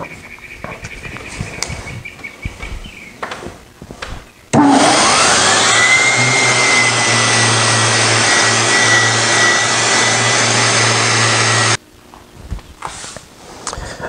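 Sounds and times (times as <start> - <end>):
orbital sander whining: 4.6 - 11.8.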